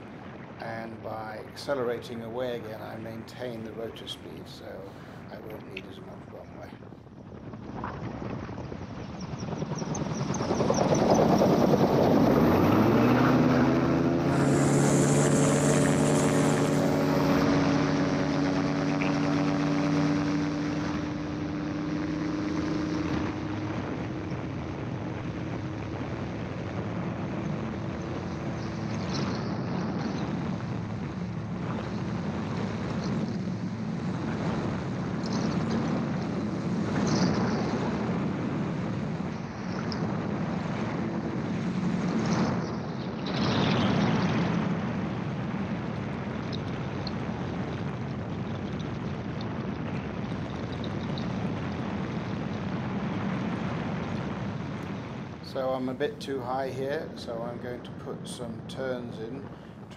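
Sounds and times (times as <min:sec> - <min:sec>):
rushing air noise: 0:00.0 - 0:44.4
aircraft engine and propeller revving: 0:09.1 - 0:45.3.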